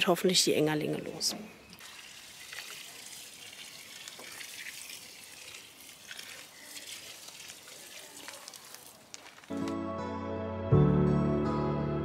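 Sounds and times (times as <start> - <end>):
water pouring from watering can: 1.8 - 9.5.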